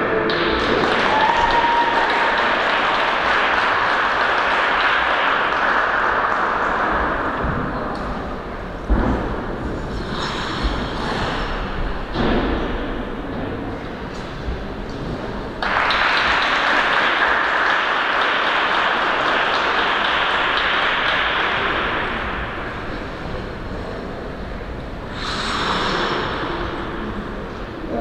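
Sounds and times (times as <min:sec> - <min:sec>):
crowd applause: 0:00.0 - 0:07.9, 0:15.4 - 0:23.4, 0:25.1 - 0:27.5.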